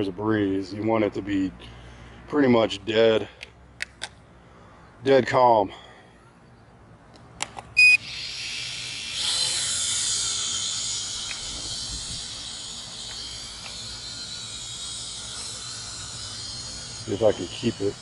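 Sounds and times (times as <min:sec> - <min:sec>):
drone propellers whining: 0:07.8 - 0:18.0.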